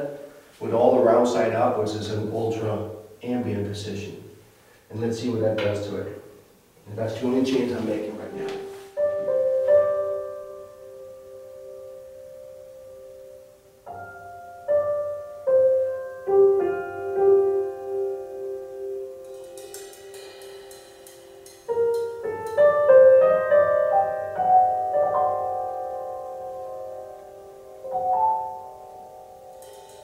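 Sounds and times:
piano chords over loudspeakers: 7.0s - 30.0s
soft cymbal strokes: 17.7s - 23.3s, 28.5s - 30.0s.

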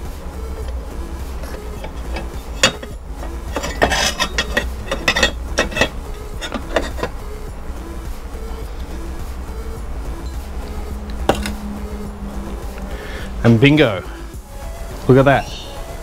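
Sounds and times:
background music: 0.0s - 16.0s
metal bracket clinking: 1.4s - 7.4s, 10.2s - 11.7s.

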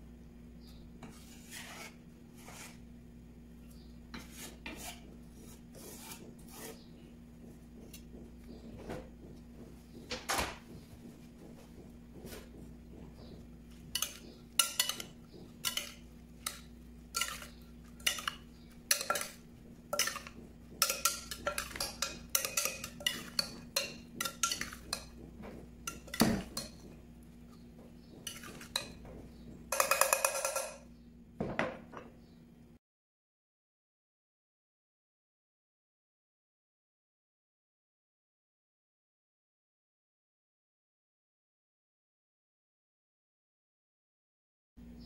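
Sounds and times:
spoon scraping glass bowl: 13.8s - 26.9s, 28.2s - 29.0s, 29.7s - 30.8s.

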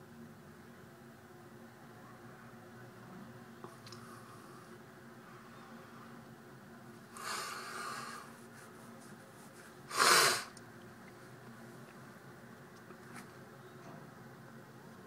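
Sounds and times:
person breathing close to microphone: 7.1s - 8.4s, 9.9s - 10.5s
sharp burst of breath: 7.2s - 8.3s, 9.9s - 10.5s.

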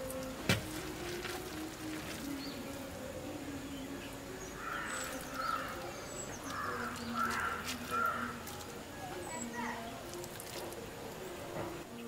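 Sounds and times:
crow cawing: 4.6s - 5.8s, 6.5s - 8.4s.

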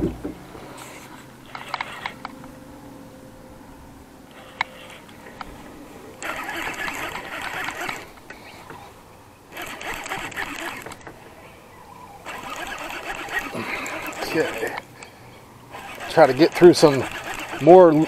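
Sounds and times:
fishing reel whirring: 1.4s - 2.3s, 4.3s - 5.2s, 6.2s - 8.9s, 9.5s - 11.1s, 12.2s - 15.1s, 15.7s - 18.0s.

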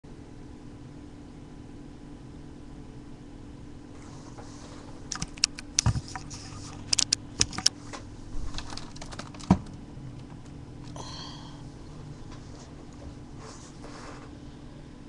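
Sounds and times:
low electrical hum: 0.1s - 15.0s
keyboard clicks: 5.1s - 7.7s.

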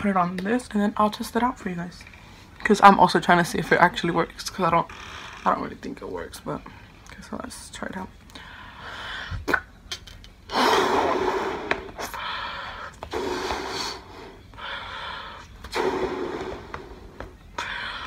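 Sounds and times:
puffs blowing up balloon: 10.5s - 12.2s, 13.1s - 17.2s
quick breaths drawn in: 10.5s - 18.0s.

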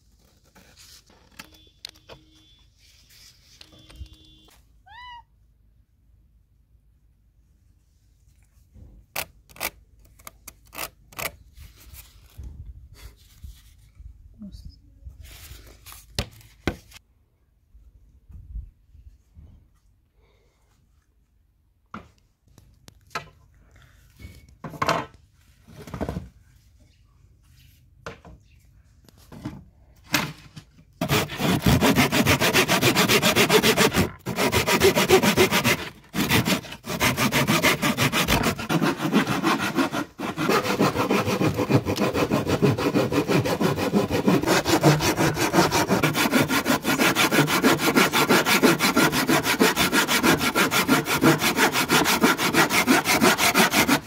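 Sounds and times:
hand saw cutting wood: 31.0s - 54.0s.

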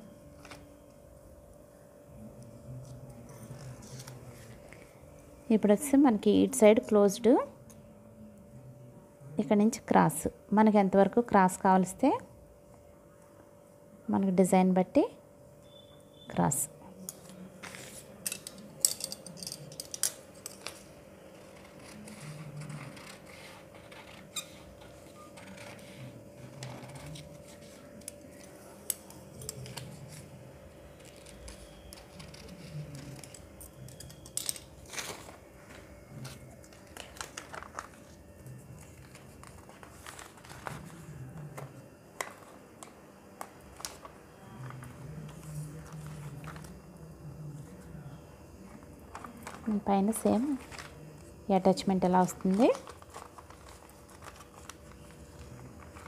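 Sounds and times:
faint steady hum: 0.0s - 56.0s
paper rustling and crinkling: 20.6s - 28.7s, 34.9s - 42.6s, 48.6s - 49.8s, 50.4s - 51.2s, 52.2s - 56.0s.

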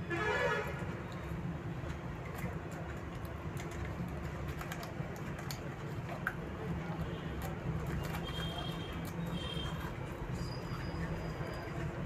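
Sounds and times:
children chewing biscuits: 1.0s - 12.0s.

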